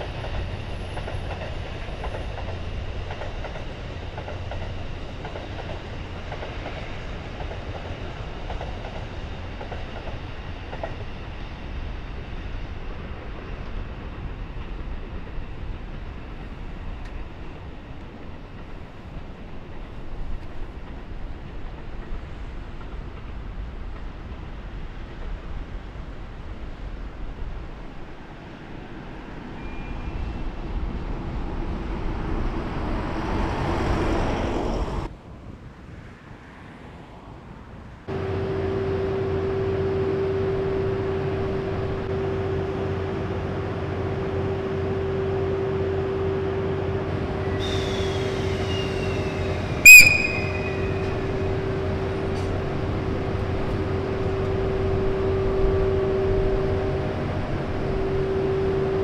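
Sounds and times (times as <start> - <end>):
electric locomotive humming: 0.0 - 35.1, 38.1 - 59.0
train running along track: 0.0 - 59.0
loud high-pitched tone: 49.8 - 51.4.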